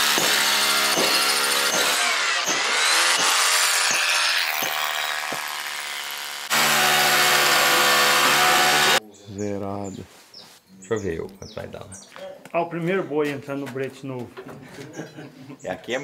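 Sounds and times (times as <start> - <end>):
electric power tool running: 0.0 - 9.0.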